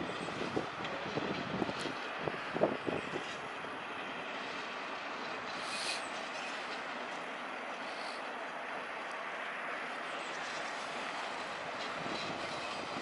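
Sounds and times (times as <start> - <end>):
train wheels rumbling on rails: 0.0 - 13.0
high hiss: 5.6 - 6.1.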